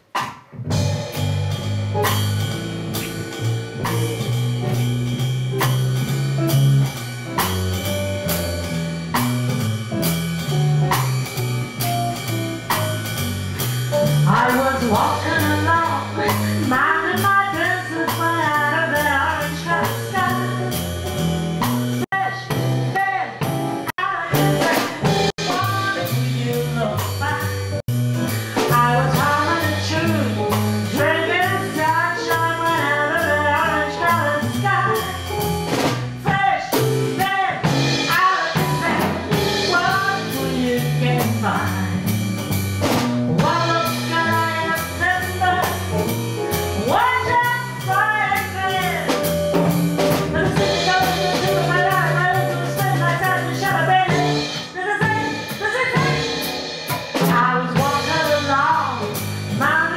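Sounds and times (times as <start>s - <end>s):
drum kit swing beat: 0.0s - 59.9s
walking double bass line: 0.6s - 59.9s
woman singing: 14.3s - 20.8s, 22.1s - 23.4s, 24.0s - 27.5s, 28.6s - 35.4s, 36.3s - 41.9s, 43.4s - 45.9s, 46.8s - 49.1s, 50.4s - 56.5s, 57.2s - 59.9s.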